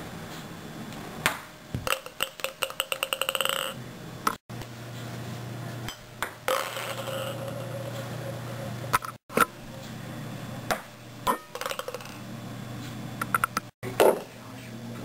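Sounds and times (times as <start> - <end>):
ping-pong ball bouncing off plastic cups: 1.8 - 3.8, 10.7 - 12.2.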